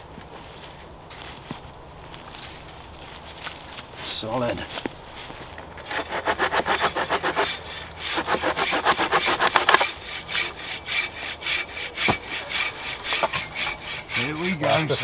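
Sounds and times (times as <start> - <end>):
hand saw cutting through log: 5.8 - 15.0.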